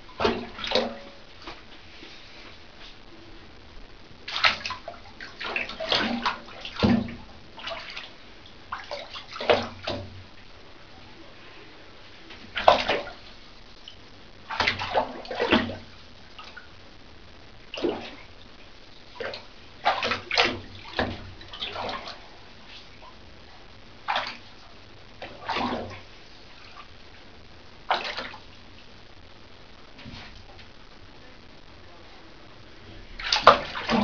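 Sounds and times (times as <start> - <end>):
cat splashing water: 0.0 - 1.6, 4.2 - 10.4, 12.3 - 13.5, 14.4 - 16.7, 17.6 - 22.9, 24.0 - 26.9, 27.8 - 28.7, 33.1 - 34.0.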